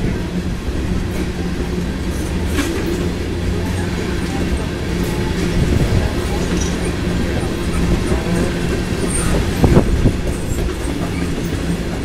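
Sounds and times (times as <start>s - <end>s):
train wheels rumbling on rails: 0.0s - 12.0s
wheels clicking over rail joints: 1.1s - 12.0s.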